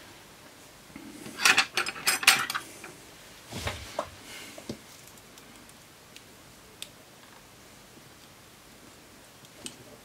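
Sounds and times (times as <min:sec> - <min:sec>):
metal hand tools clattering: 0:01.4 - 0:02.6.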